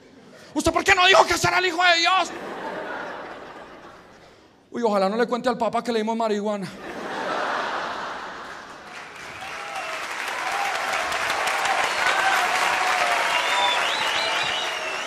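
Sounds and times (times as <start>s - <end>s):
audience applauding: 7.8s - 15.0s
cheers and whistles: 9.2s - 15.0s.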